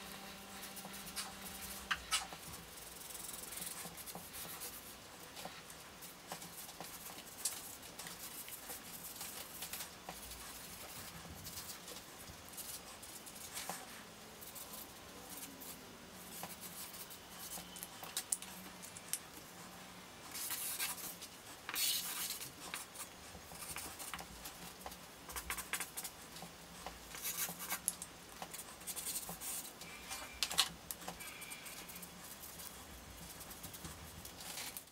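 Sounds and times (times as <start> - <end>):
marker pens scratching on paper: 0.0 - 19.2, 20.3 - 34.9
faint low hum: 0.0 - 21.5.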